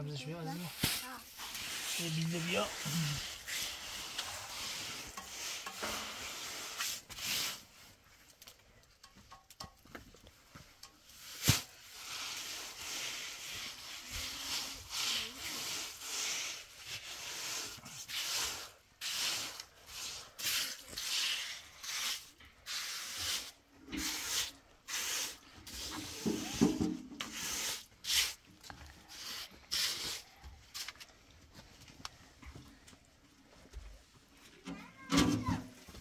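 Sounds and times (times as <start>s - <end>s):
scraping strokes: 0.5s - 8.0s, 11.0s - 31.1s.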